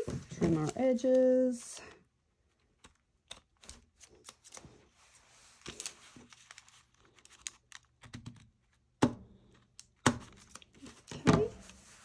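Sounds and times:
paper and fabric rustling: 0:00.0 - 0:01.9, 0:04.0 - 0:08.0, 0:10.7 - 0:12.0.

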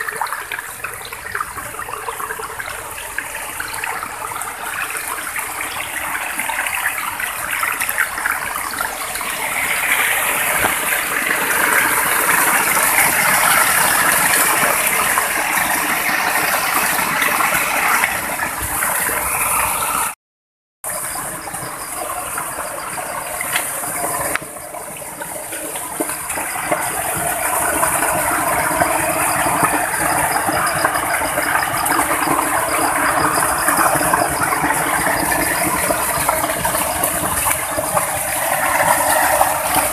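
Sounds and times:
small waterfall rushing and splashing: 0:00.0 - 0:20.2.

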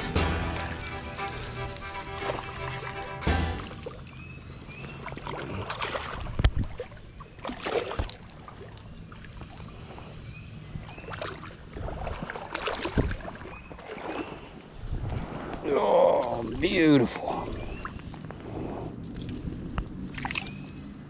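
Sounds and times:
fish splashing in water: 0:00.5 - 0:10.1, 0:10.8 - 0:14.6, 0:19.1 - 0:20.8.

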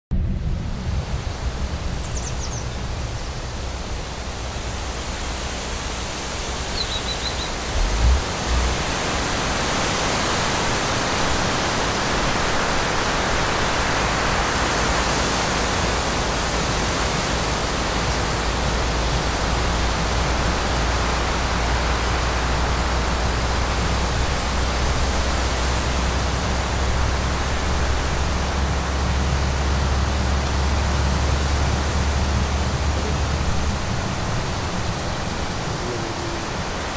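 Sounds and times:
low engine rumble: 0:00.1 - 0:10.5, 0:12.2 - 0:36.9
rushing noise in vehicle cabin: 0:00.1 - 0:36.9.

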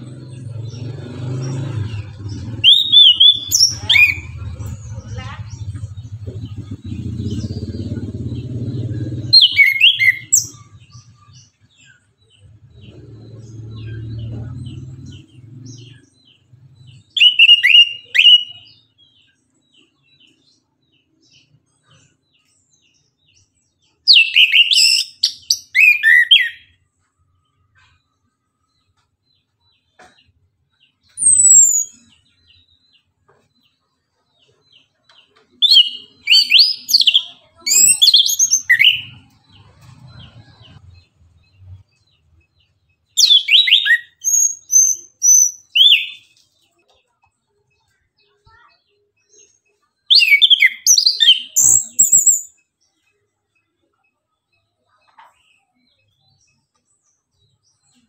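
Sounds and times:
thrush singing warbling phrases: 0:00.0 - 0:10.8.

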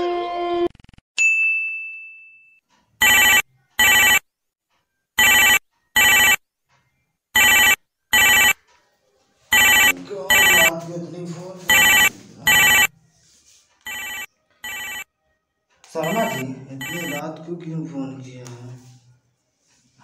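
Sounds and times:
telephone ringing: 0:03.0 - 0:04.2, 0:05.2 - 0:06.4, 0:07.4 - 0:08.6, 0:09.5 - 0:10.7, 0:11.7 - 0:12.9, 0:13.9 - 0:15.1, 0:16.0 - 0:17.2
held tone: 0:16.0 - 0:17.2.

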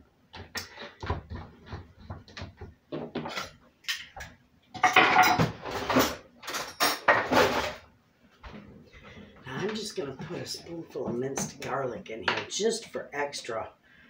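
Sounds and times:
dishes and cutlery clinking: 0:04.8 - 0:07.8.

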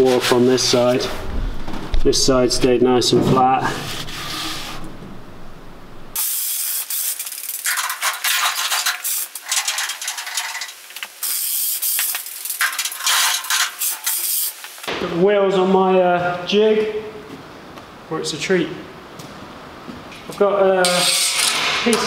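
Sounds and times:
caster wheels and metal frame rattling: 0:07.3 - 0:10.9, 0:12.0 - 0:14.2.

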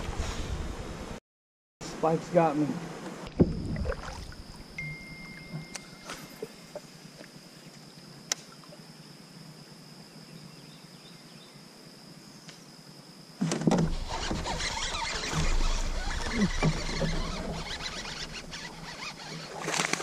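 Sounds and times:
high insect drone: 0:02.0 - 0:20.0
water splashing: 0:03.2 - 0:06.8, 0:13.8 - 0:20.0
gear handling noise: 0:13.5 - 0:20.0.

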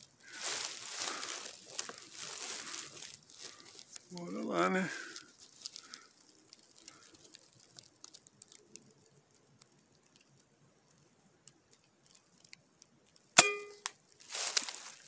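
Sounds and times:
faint ticks: 0:05.2 - 0:13.3.

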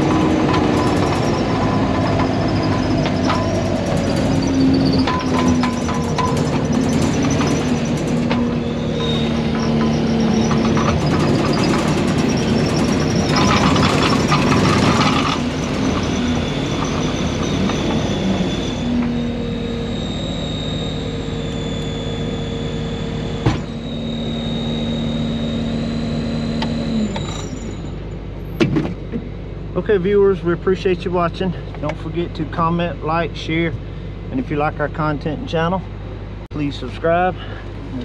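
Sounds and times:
steady high whine: 0:00.0 - 0:28.5
diesel engine running: 0:00.0 - 0:38.0.

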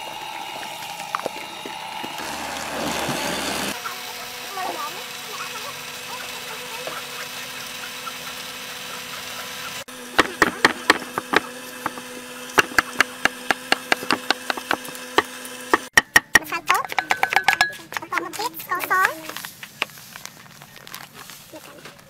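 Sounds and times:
cleaver chopping on wooden board: 0:10.1 - 0:17.8.

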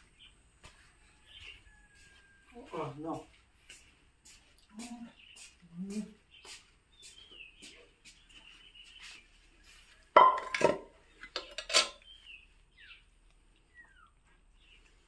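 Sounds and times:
plate clattering on floor: 0:10.2 - 0:10.9.

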